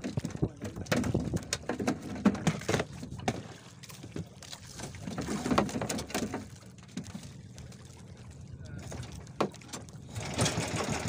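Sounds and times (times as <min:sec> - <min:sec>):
knocks against boat hull: 0:00.1 - 0:03.5.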